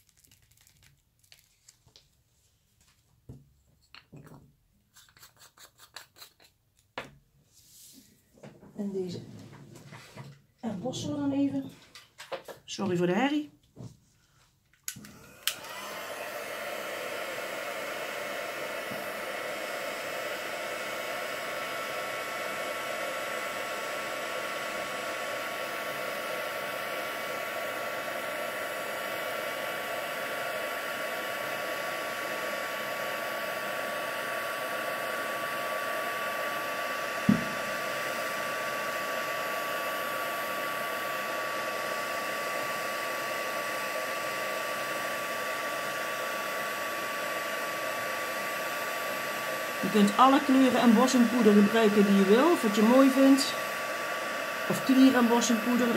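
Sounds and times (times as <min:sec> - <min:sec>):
heat gun blowing: 0:14.9 - 0:55.9.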